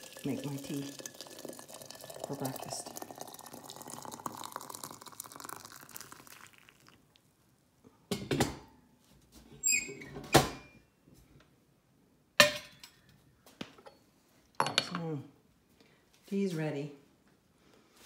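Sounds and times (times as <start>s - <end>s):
water pouring into teapot: 0.0s - 7.2s.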